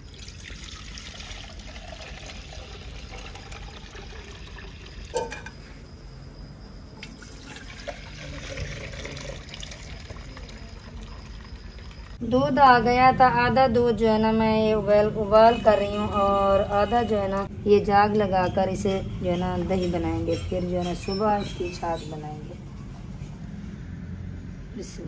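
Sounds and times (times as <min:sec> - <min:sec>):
milk pouring into metal pots: 0:00.0 - 0:05.5, 0:07.0 - 0:12.2.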